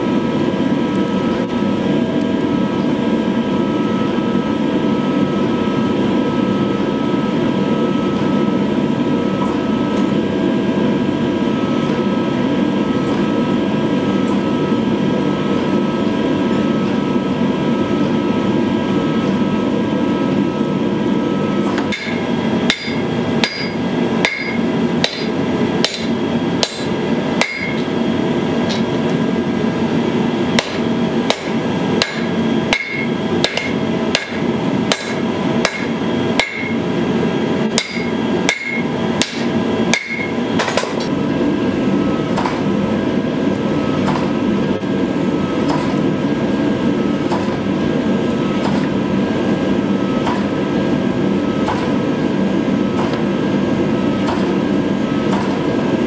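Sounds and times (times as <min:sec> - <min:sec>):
hammer striking steel on anvil: 0:21.8 - 0:27.9, 0:30.5 - 0:36.8, 0:37.7 - 0:41.1.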